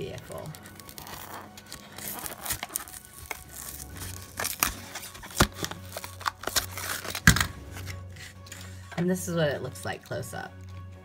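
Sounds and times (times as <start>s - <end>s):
plastic blister pack crinkling: 0.1s - 8.7s
plastic snapping and tearing: 0.3s - 8.7s.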